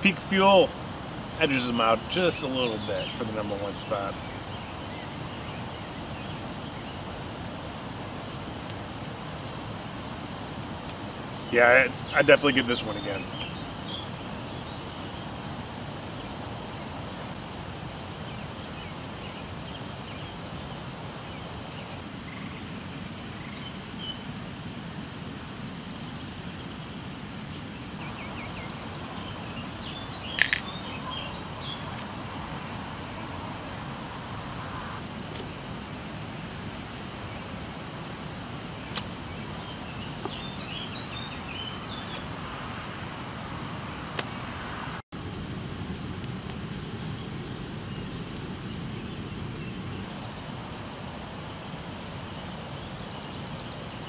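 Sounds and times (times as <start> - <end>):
birds chirping: 0.0 - 7.5, 8.2 - 24.4, 26.0 - 35.6, 38.6 - 43.4, 46.8 - 50.4
steady background hiss: 0.0 - 54.0
sharp click: 30.4 - 30.7.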